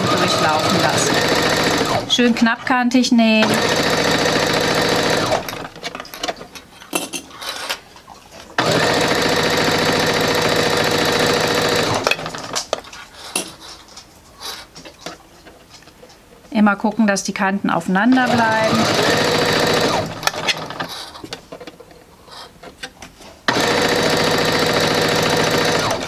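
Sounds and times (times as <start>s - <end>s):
sewing machine stitching: 0.0s - 2.6s, 3.4s - 6.2s, 8.6s - 12.7s, 18.1s - 21.0s, 23.5s - 26.0s.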